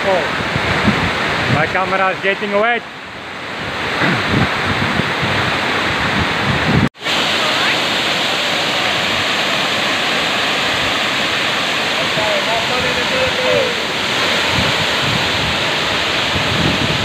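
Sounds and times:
wind buffeting microphone: 0:00.0 - 0:01.9, 0:03.2 - 0:07.0, 0:12.6 - 0:17.0
waterfall rushing: 0:00.0 - 0:17.0.

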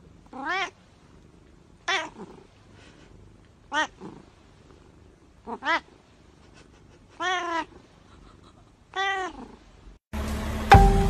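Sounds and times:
cat meowing: 0:00.3 - 0:00.8, 0:01.8 - 0:02.3, 0:03.7 - 0:04.1, 0:05.5 - 0:06.0, 0:07.1 - 0:07.8, 0:08.9 - 0:09.6
marimba music: 0:10.6 - 0:11.0.

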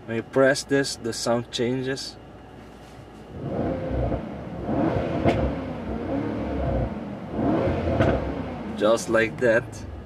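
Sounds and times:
car engine running: 0:03.3 - 0:10.0.

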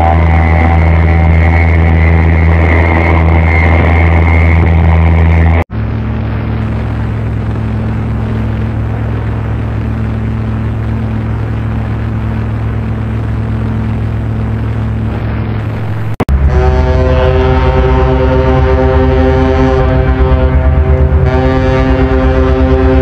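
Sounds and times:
higher-pitched horn blast: 0:00.0 - 0:05.6, 0:15.8 - 0:23.0
deep ship horn blast: 0:00.0 - 0:10.7, 0:15.8 - 0:23.0.

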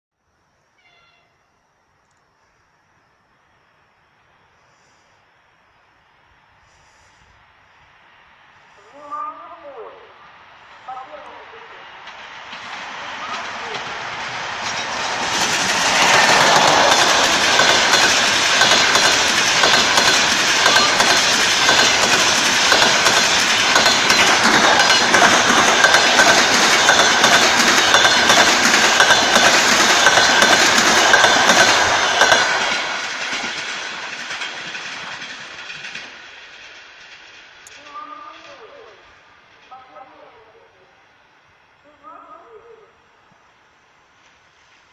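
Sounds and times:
train wheels roaring on rails: 0:02.1 - 0:41.9
wheels clicking over rail joints: 0:12.0 - 0:38.9.

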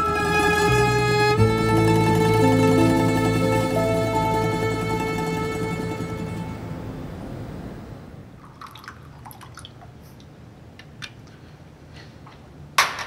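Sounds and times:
background music: 0:00.0 - 0:08.0.

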